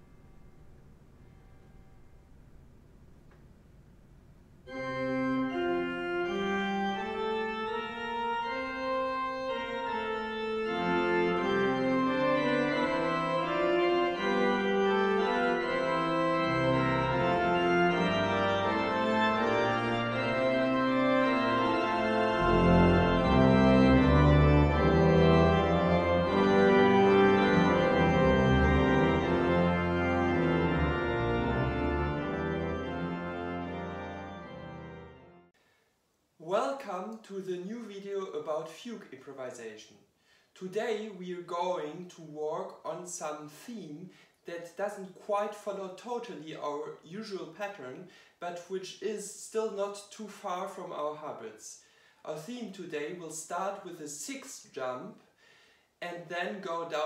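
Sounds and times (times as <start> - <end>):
deep organ bass: 4.7 - 35.5
organ playing a fugue: 4.7 - 35.6.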